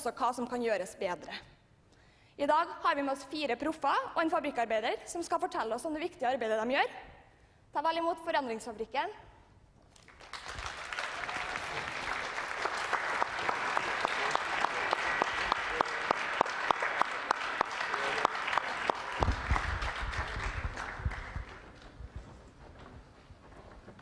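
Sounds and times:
audience applauding: 0:09.9 - 0:22.0.

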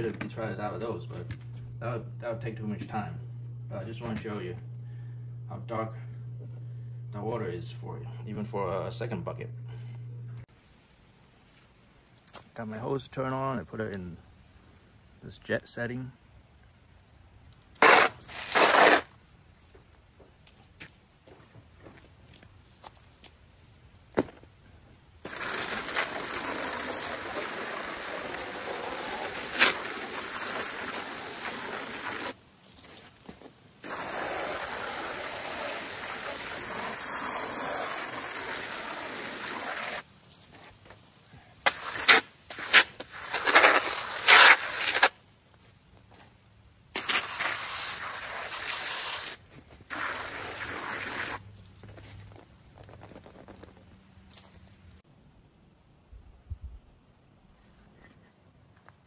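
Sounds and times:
hose water spray hissing: 0:17.8 - 0:19.1, 0:25.2 - 0:32.4, 0:33.8 - 0:40.1, 0:41.6 - 0:45.2, 0:46.9 - 0:51.5.

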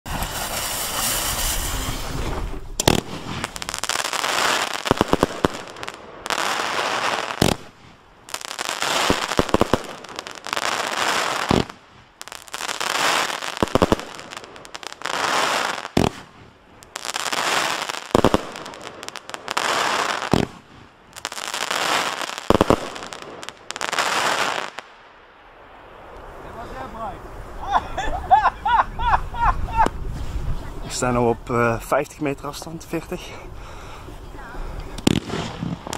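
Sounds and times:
firework launch bangs: 0:00.1 - 0:06.6, 0:07.2 - 0:08.0, 0:11.4 - 0:11.9, 0:15.2 - 0:16.5, 0:20.3 - 0:20.9, 0:35.0 - 0:35.9
firework stars crackling: 0:00.1 - 0:33.3, 0:34.2 - 0:35.9.

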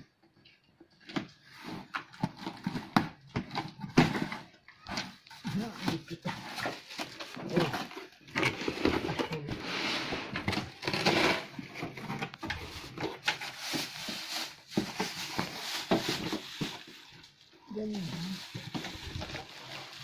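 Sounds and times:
plastic film crinkling: 0:12.3 - 0:20.0.

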